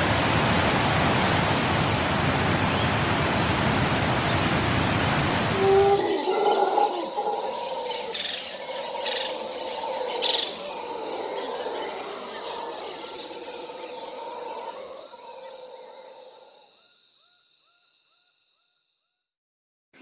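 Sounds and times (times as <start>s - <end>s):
insects chorus: 5.1s - 19.1s.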